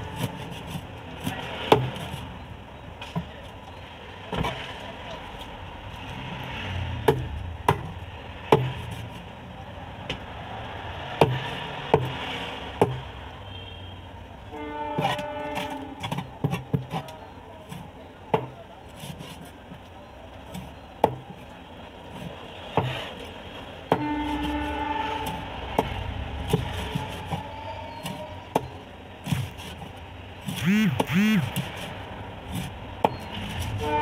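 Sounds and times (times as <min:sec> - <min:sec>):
street noise: 0:00.0 - 0:34.0
cleaver chopping on wooden block: 0:08.5 - 0:08.8, 0:11.2 - 0:12.2, 0:12.8 - 0:13.1, 0:30.4 - 0:31.8.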